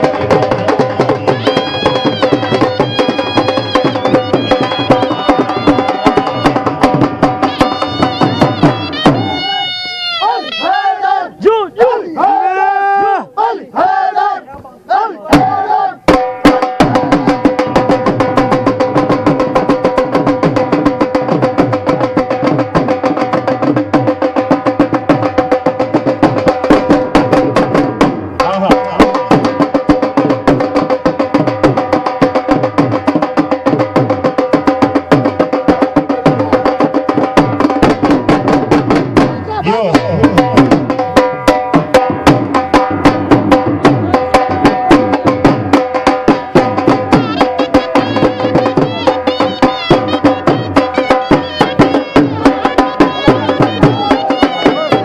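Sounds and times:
fast steady drumming: 0.0s - 10.9s, 15.2s - 55.0s
sustained melody instrument: 1.2s - 10.7s, 46.9s - 55.0s.

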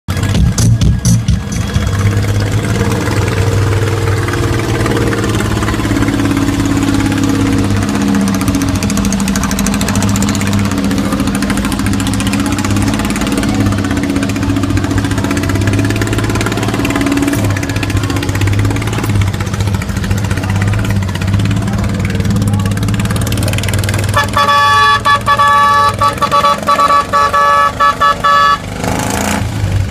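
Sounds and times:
multi-tone horn honking: 24.0s - 28.9s.

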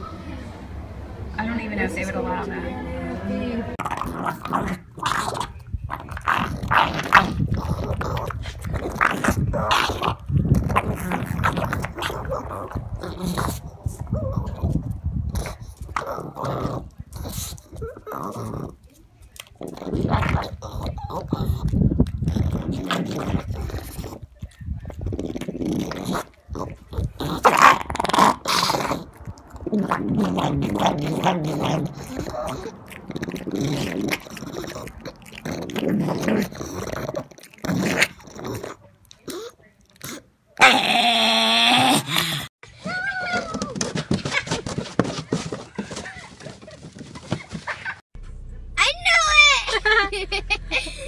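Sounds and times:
low growling: 0.0s - 38.8s
dog chewing: 3.8s - 40.3s.

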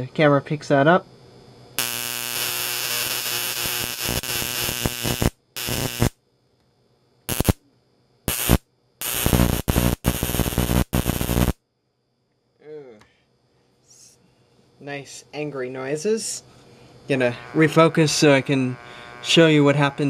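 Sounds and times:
electric arc buzzing and crackling: 1.8s - 6.2s, 7.3s - 7.6s, 8.3s - 11.6s, 17.1s - 20.0s.

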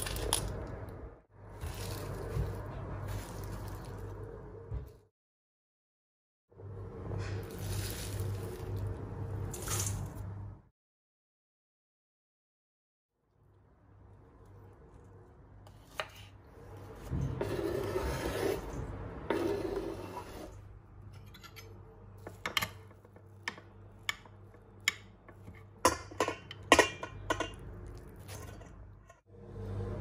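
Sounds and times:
knife scraping cutting board: 17.0s - 20.6s.

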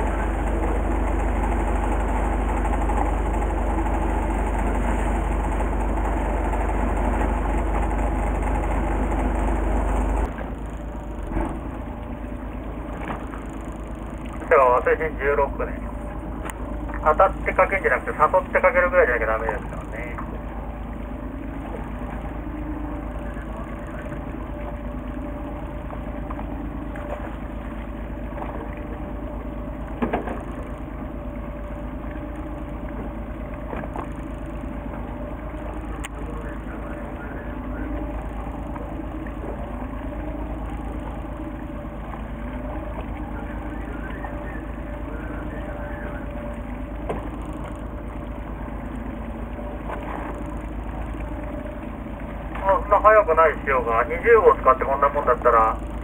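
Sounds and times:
boat engine idling: 0.0s - 56.0s.

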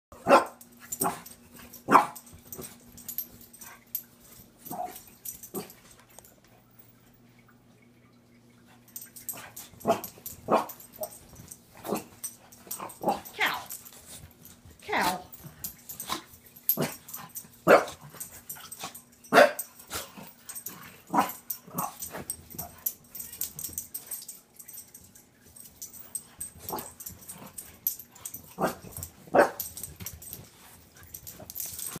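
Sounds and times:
dog barking and growling: 0.1s - 3.8s, 4.6s - 5.9s, 9.2s - 14.1s, 14.8s - 23.7s, 26.0s - 30.3s.

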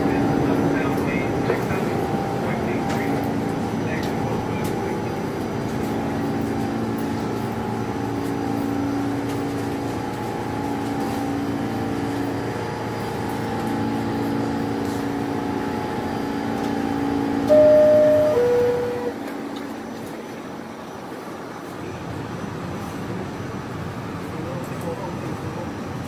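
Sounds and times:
subway train humming: 0.0s - 26.0s
high steady tone: 17.2s - 19.4s.

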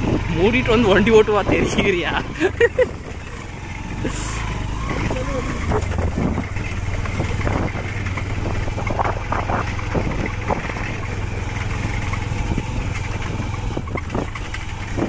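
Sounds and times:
motorcycle engine: 0.0s - 15.0s
wind rumble: 0.0s - 15.0s
knocks and rattles: 4.9s - 15.0s.

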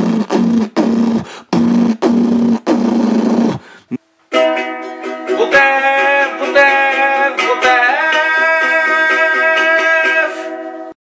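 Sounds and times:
ukulele strumming: 4.3s - 11.0s
man singing: 5.2s - 10.7s.

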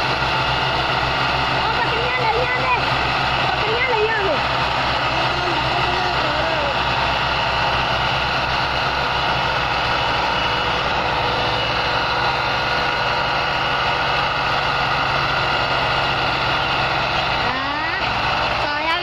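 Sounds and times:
tractor diesel engines under load: 0.0s - 19.0s.

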